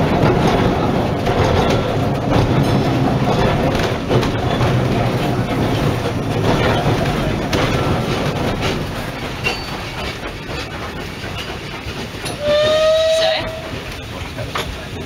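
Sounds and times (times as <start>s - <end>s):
train wheels clicking: 0.0s - 15.0s
steam locomotive whistle: 12.4s - 13.8s.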